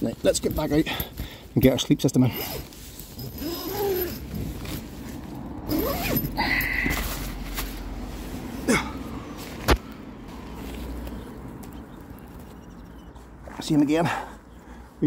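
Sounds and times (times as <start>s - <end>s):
nylon tent rustling: 0.0s - 11.2s.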